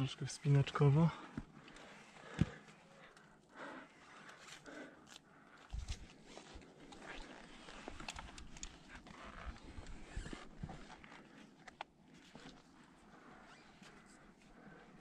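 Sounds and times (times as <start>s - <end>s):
person breathing hard: 1.2s - 5.8s
gear clicking and scraping on rock: 4.0s - 11.5s.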